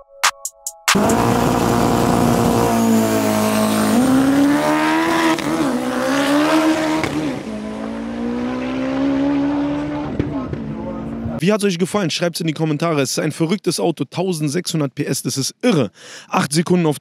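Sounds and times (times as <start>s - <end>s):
turbocharged car engine revving: 0.9s - 11.4s.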